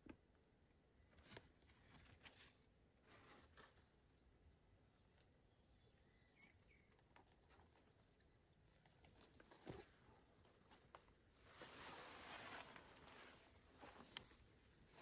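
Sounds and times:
soft rustling hiss: 7.3s - 15.0s.

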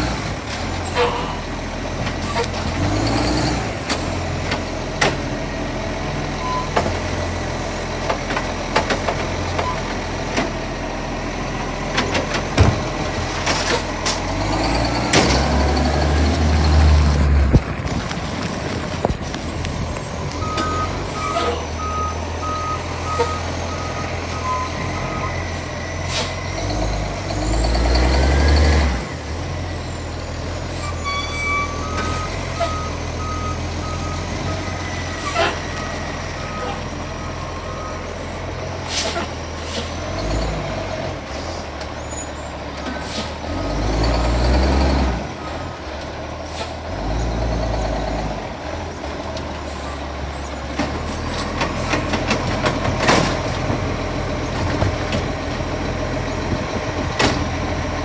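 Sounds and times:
diesel engine revving: 0.0s - 58.0s
air brake hissing: 26.0s - 26.4s, 38.8s - 40.0s, 42.9s - 43.4s, 46.4s - 46.8s.

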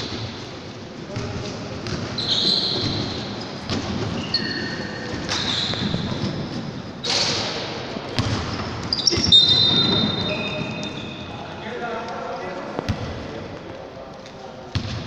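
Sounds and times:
basketball bouncing: 1.1s - 7.2s, 8.1s - 10.1s, 14.7s - 15.0s
sneakers squeaking on gym floor: 1.1s - 11.6s.

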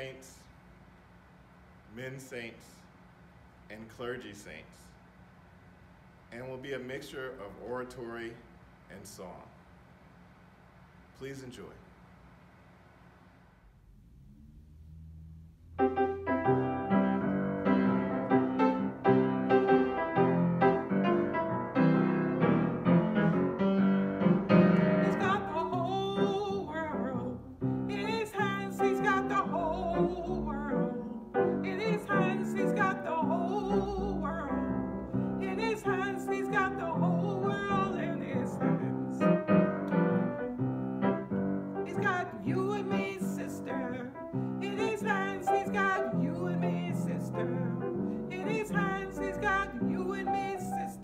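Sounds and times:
piano playing: 15.6s - 51.0s
woman singing with vibrato: 25.0s - 34.7s, 35.4s - 39.1s, 41.9s - 51.0s.

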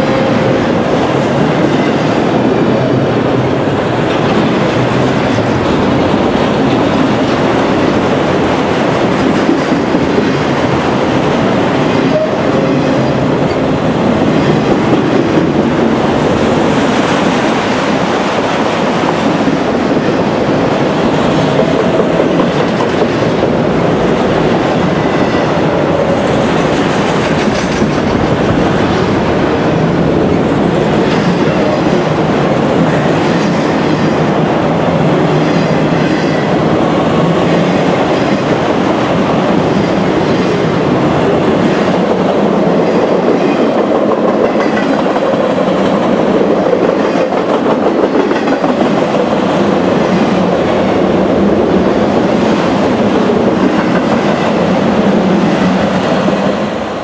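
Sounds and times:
freight train wheels rumbling: 0.0s - 57.0s
wheels clickety-clack: 4.0s - 11.0s, 21.1s - 29.2s, 41.5s - 50.7s.

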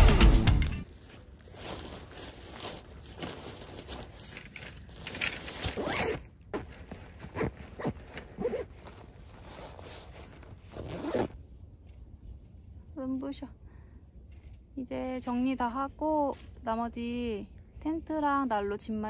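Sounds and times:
fabric rustling and scraping: 0.9s - 11.4s
zipper being pulled: 5.2s - 11.4s.

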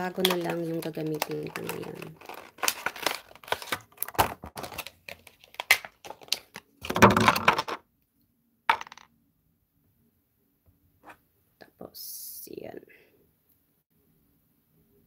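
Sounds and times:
plastic packaging crinkling: 0.0s - 7.7s.

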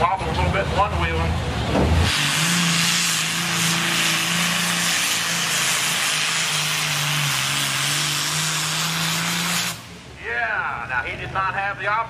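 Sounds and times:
tractor engine running flat out: 2.0s - 9.9s.

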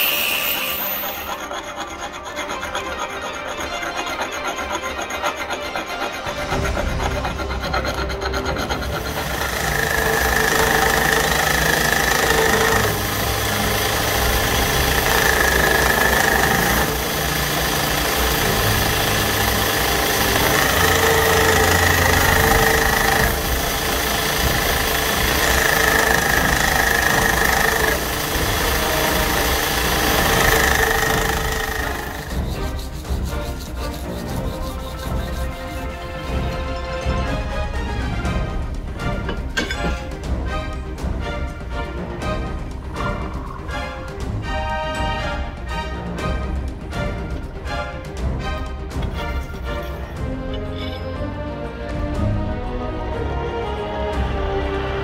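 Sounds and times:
hand file rasping on steel: 0.0s - 36.6s
belt grinder grinding steel: 0.0s - 36.8s.

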